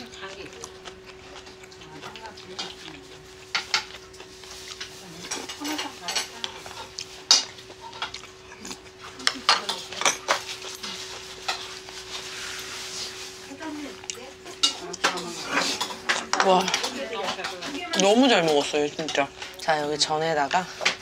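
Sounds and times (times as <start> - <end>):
utensils clinking against dishes: 0.0 - 21.0.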